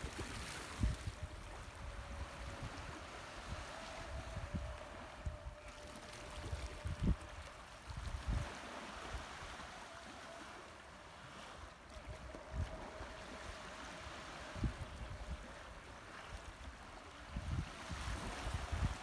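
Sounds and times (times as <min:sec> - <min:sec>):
wind buffeting microphone: 0:00.0 - 0:09.4, 0:17.3 - 0:19.0
small waves at the shore: 0:00.0 - 0:19.0.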